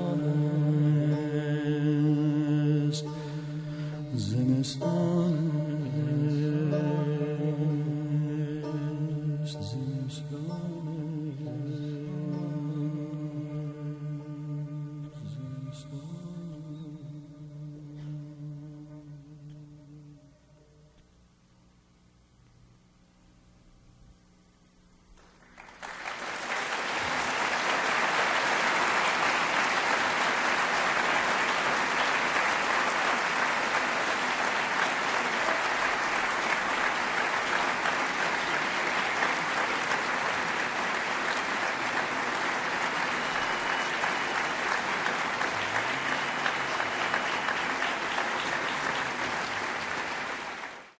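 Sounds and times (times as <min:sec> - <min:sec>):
audience applauding: 0:25.2 - 0:51.0.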